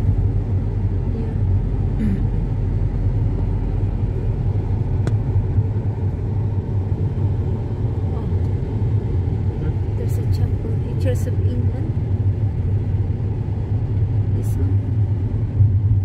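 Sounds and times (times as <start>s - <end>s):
car engine and tyres rumbling: 0.0s - 16.0s.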